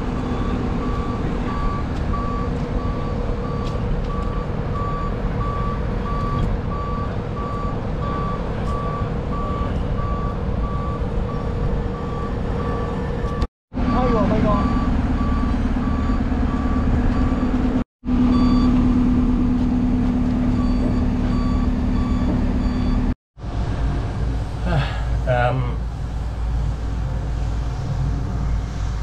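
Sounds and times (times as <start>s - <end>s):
warning beeper: 0.0s - 18.8s
engine running: 0.0s - 29.0s.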